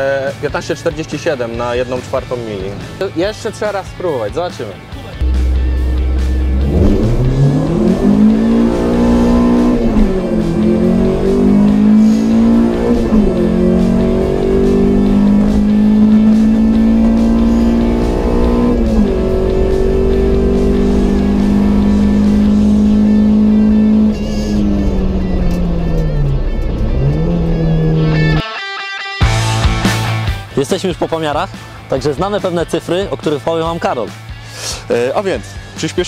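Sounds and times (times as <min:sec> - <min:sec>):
car engine accelerating through gears: 0:05.2 - 0:28.4.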